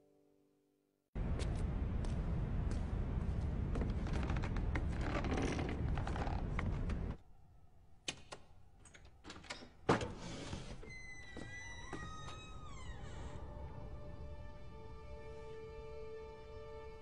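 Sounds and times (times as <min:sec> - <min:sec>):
creaking door hinge: 0:10.5 - 0:13.5.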